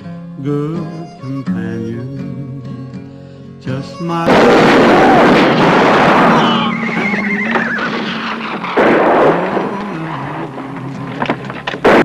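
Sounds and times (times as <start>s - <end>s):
background music: 0.0s - 12.0s
horse whinnying: 4.8s - 10.6s.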